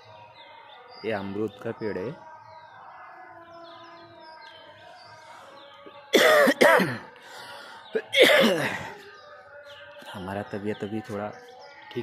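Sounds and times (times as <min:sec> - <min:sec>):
birds chirping: 0:00.0 - 0:12.0
man coughing hoarsely: 0:06.2 - 0:07.1, 0:08.0 - 0:08.9.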